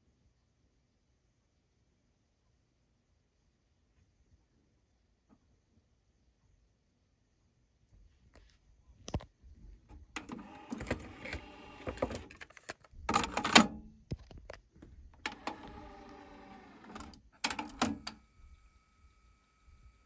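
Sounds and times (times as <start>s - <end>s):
plastic handling noise: 9.9s - 18.1s.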